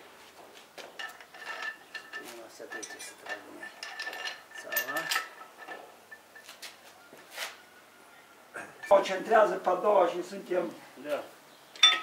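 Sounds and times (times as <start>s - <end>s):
metal parts clinking and scraping: 1.0s - 6.6s, 11.8s - 12.0s.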